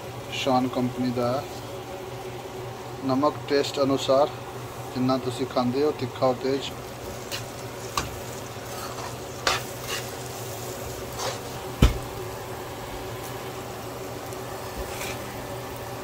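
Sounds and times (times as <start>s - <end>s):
food sizzling in oil: 0.0s - 16.0s
spatula scraping pan: 7.1s - 11.7s, 14.8s - 15.3s.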